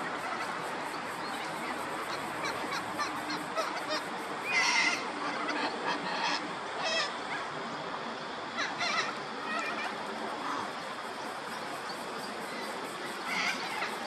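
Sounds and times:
waterfowl calling: 1.4s - 7.2s.

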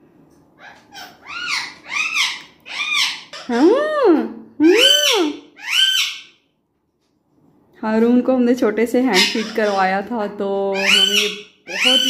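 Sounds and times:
parrot whistling calls: 4.6s - 6.3s, 10.8s - 12.0s.

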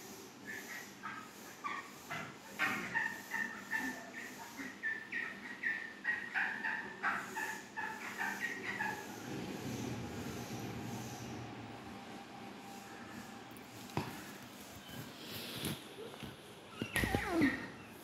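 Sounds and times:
chicken peeping: 0.5s - 10.0s.

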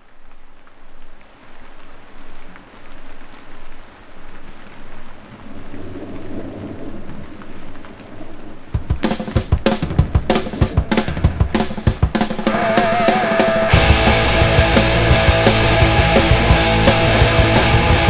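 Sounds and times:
noisy rain-like wash: 0.0s - 18.0s
drum kit: 8.8s - 18.0s
low rumble: 13.7s - 18.0s.

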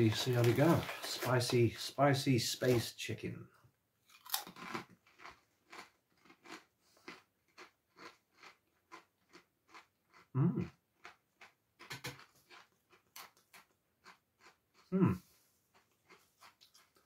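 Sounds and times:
crisp being chewed: 4.1s - 15.0s, 15.7s - 17.0s.

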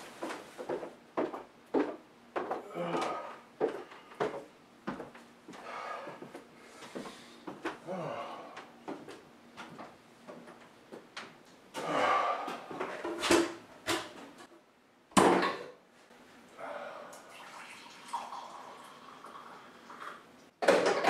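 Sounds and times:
coffee pouring into mug: 17.2s - 20.2s.

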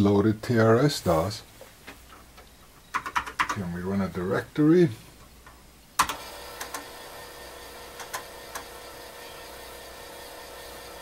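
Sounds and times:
floppy drive motor humming: 6.0s - 11.0s.

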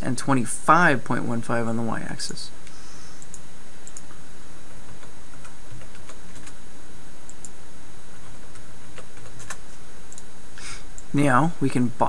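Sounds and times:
steady background hiss: 0.0s - 12.0s
keyboard and mouse clicks: 3.2s - 4.1s.

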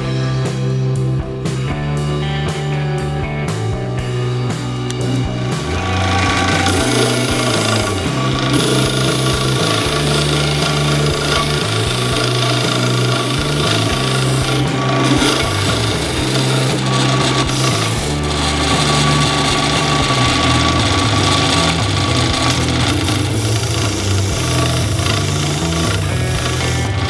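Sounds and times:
drill press motor running: 4.9s - 27.0s
sanding drum rasping wood: 5.0s - 27.0s.

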